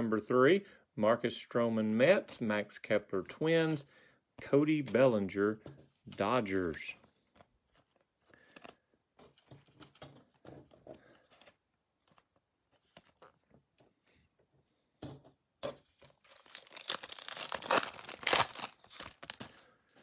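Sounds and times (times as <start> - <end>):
cards rustling and tapping: 4.7 - 13.9, 15.6 - 20.0
foil wrapper tearing and crinkling: 16.2 - 19.6.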